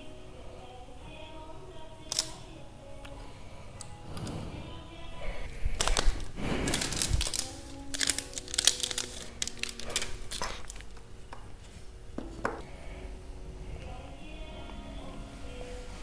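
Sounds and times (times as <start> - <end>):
background music: 0.0 - 16.0
paper sheet rustling: 5.5 - 11.9.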